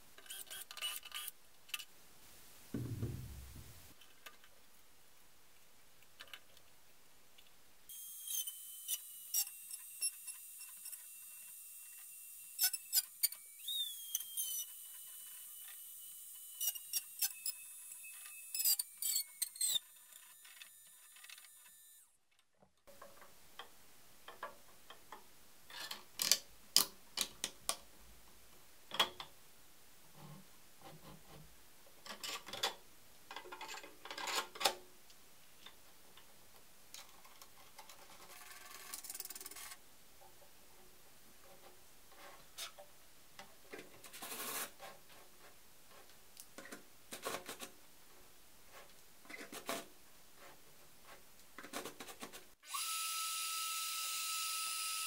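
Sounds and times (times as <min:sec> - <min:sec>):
short low thump: 0:02.7 - 0:03.9.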